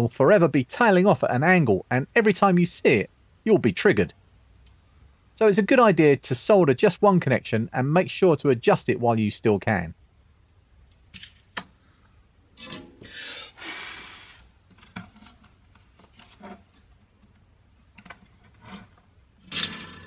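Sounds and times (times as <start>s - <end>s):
tools clicking and scraping: 12.6s - 13.1s, 18.0s - 20.0s
hiss: 13.2s - 14.5s.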